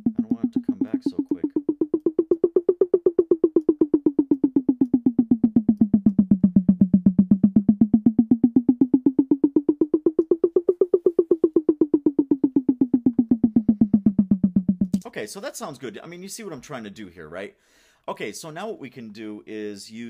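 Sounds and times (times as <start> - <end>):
looped tom-tom drum hits: 0.0 - 4.4.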